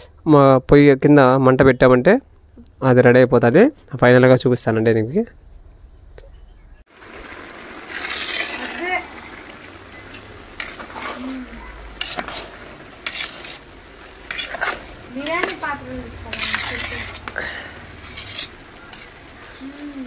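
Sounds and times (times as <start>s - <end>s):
metal ladle scraping pot: 7.7s - 9.3s, 10.0s - 19.6s.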